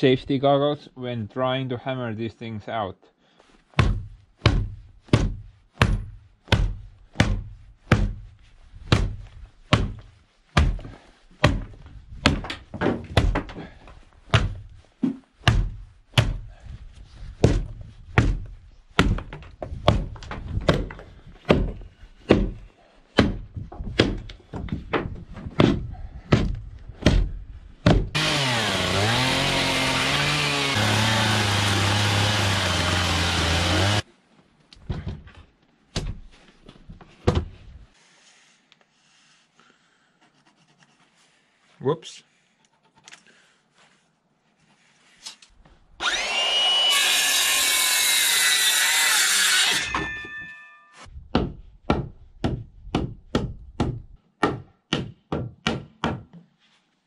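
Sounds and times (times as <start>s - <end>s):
hammer knocking on wood: 3.8s - 8.2s, 51.4s - 56.4s
power tool running: 28.1s - 34.0s, 46.0s - 49.8s.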